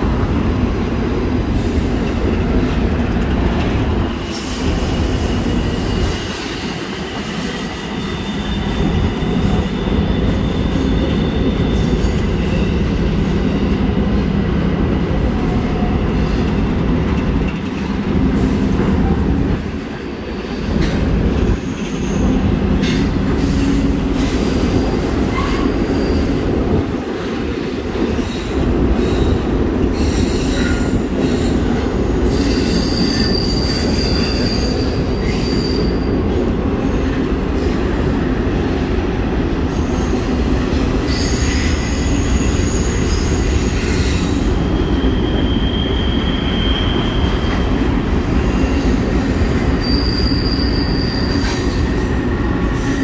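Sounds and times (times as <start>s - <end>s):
freight train cars rumbling: 0.0s - 53.0s
train wheels squealing: 3.9s - 14.2s, 20.4s - 27.3s, 28.0s - 38.3s, 39.7s - 53.0s.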